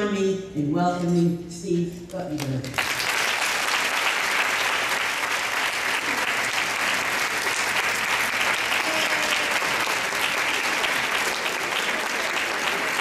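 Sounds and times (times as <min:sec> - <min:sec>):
large audience applauding: 0:02.7 - 0:13.0.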